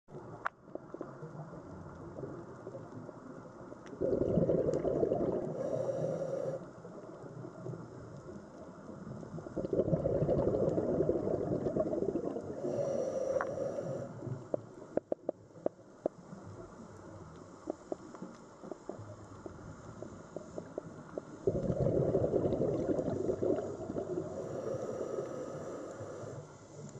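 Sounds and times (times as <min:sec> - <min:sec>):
low underwater hum: 0:00.1 - 0:26.9
scuba bubbles rushing: 0:04.0 - 0:05.8, 0:09.5 - 0:12.6, 0:21.4 - 0:24.6.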